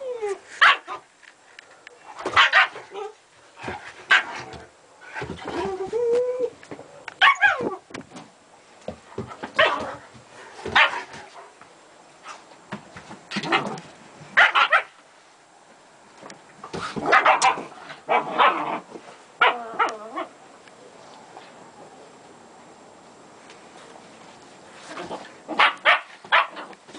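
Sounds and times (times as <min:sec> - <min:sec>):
dogs barking: 0:14.4 - 0:14.9, 0:17.0 - 0:18.7, 0:25.5 - 0:26.7.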